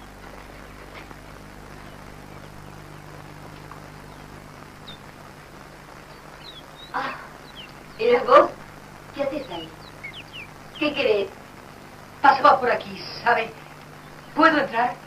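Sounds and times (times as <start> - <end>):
film soundtrack hiss and hum: 0.0 - 15.0
faint high bird chirps: 6.0 - 8.5, 9.2 - 11.2.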